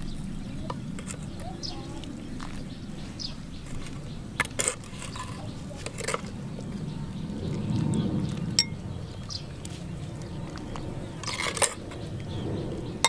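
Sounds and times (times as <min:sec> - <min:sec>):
ladle scooping soup: 0:03.6 - 0:06.8
metal clinking on pottery: 0:08.6 - 0:08.8.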